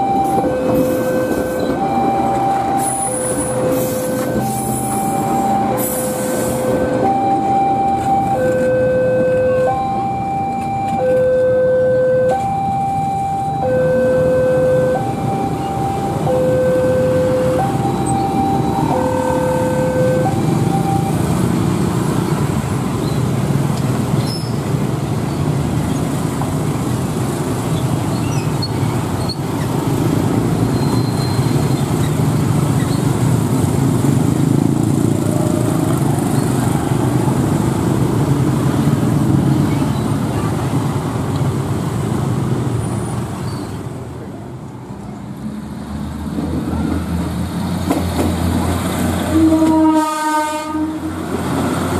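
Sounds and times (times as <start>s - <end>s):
level-crossing two-tone alarm: 0.0s - 21.4s
train rumble: 0.0s - 51.9s.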